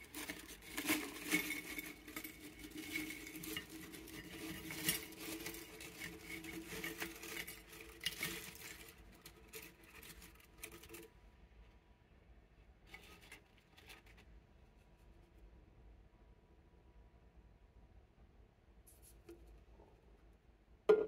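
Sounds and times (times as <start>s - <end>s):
crisps sliding onto ceramic plate: 0.0s - 11.0s.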